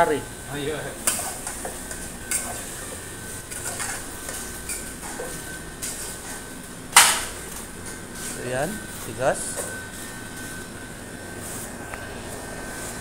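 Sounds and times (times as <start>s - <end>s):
pots and utensils clinking: 1.0s - 2.7s, 3.4s - 6.4s.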